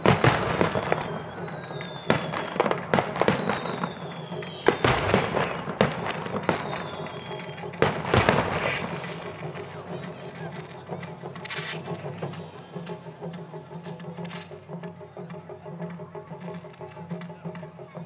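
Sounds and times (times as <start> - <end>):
falling firework whistles: 0.0 - 10.6
firework shells bursting: 0.0 - 12.4.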